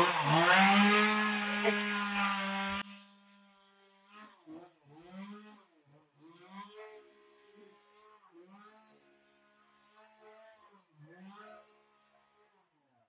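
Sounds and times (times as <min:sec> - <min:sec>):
distant chainsaw revving: 0:00.0 - 0:12.6
chainsaw running: 0:00.0 - 0:12.8.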